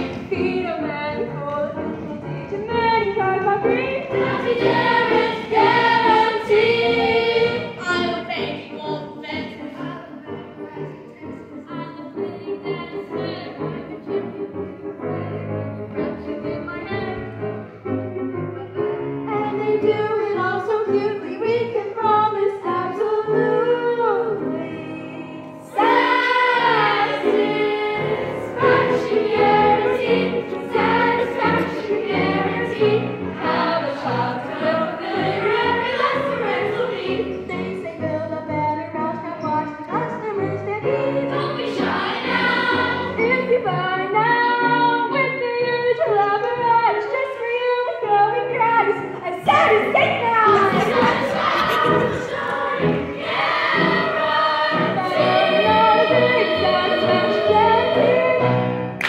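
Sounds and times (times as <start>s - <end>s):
instrumental accompaniment: 0.0s - 45.9s
young voices singing in chorus: 3.6s - 9.9s, 22.7s - 38.1s, 39.9s - 45.0s, 49.4s - 58.8s.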